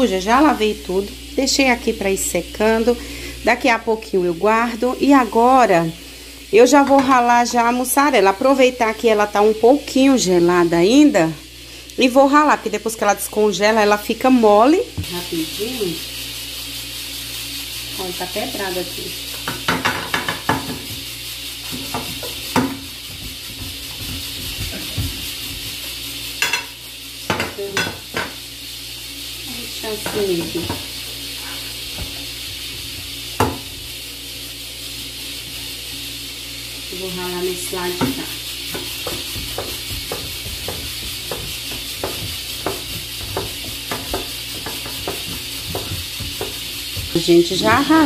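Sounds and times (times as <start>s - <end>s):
pressure cooker hissing: 0.0s - 48.0s
cheese grating: 38.7s - 48.0s.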